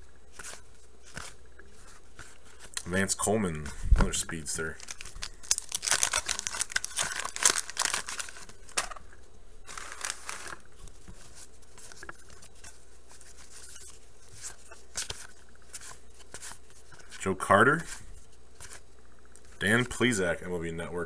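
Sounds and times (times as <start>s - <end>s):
paper rustle: 0.3s - 2.8s, 4.0s - 9.0s, 9.7s - 18.8s
paper wrapper tearing and crinkling: 4.7s - 8.9s, 9.7s - 10.7s.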